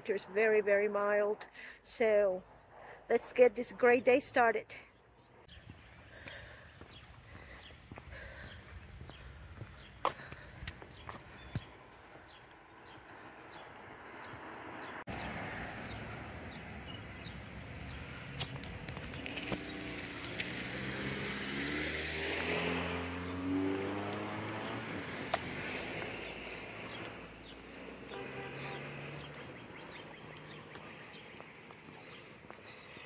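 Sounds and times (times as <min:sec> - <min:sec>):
vehicle driving past: 0:19.2 - 0:32.2.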